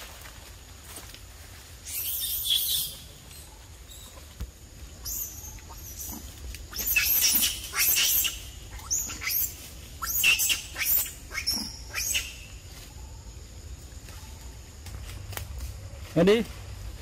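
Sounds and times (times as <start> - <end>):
animal squeaks and chirps: 1.8 - 4.2, 5.0 - 12.6.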